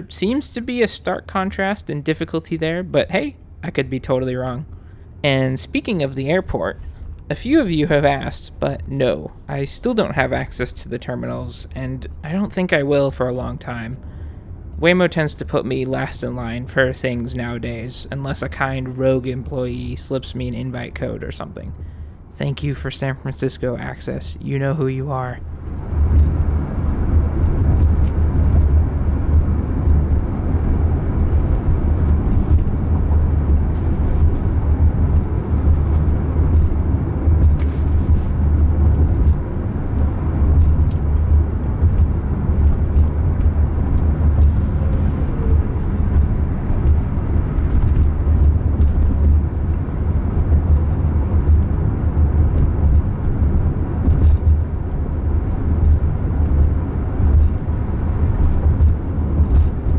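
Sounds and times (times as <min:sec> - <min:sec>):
road and tyre noise: 0:00.0 - 0:59.9.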